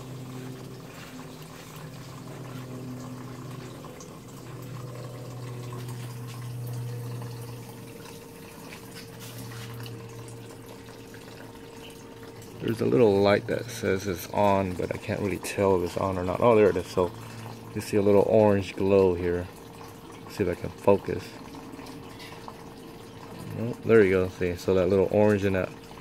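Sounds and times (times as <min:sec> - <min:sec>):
low hum: 0:00.0 - 0:18.4
water trickling and splashing: 0:00.0 - 0:26.0.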